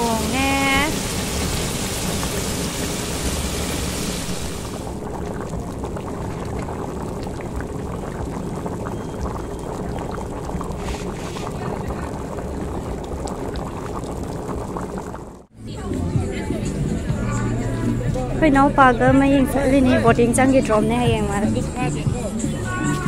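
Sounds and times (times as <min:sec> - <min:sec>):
gravy boiling and bubbling: 0:00.0 - 0:15.6.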